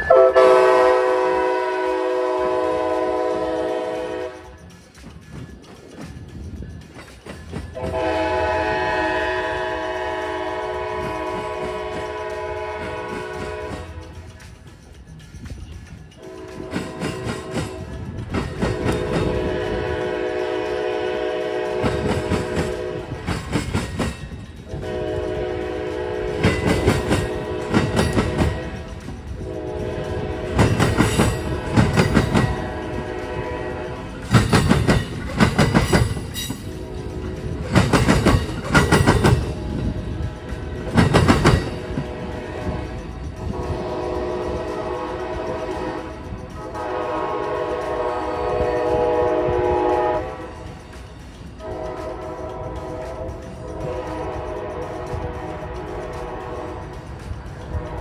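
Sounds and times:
locomotive horn blasts: 0.0 - 4.6, 7.8 - 14.2, 16.2 - 17.9, 18.7 - 23.3, 24.7 - 30.8, 31.4 - 34.3, 41.8 - 50.7, 51.6 - 57.0
train wheels clacking over crossing: 0.0 - 58.0.

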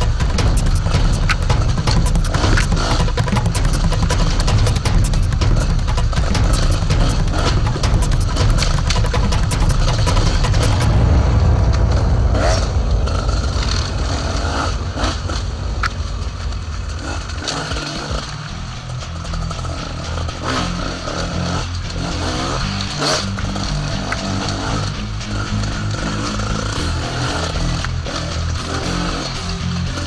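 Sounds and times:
dirt bike engine revving: 0.0 - 11.3, 13.2 - 30.0
sharp knocks: 0.0 - 16.3.

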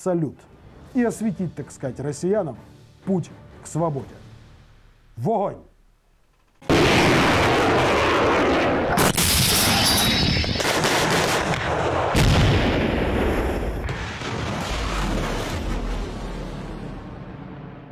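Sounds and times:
artillery blasts: 6.7 - 17.9
rocket launch rushing: 6.7 - 17.9.

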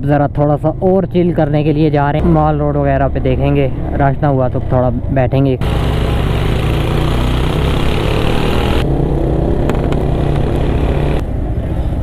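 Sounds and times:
road noise: 0.0 - 12.0
motorcycle engine running: 5.6 - 11.4.

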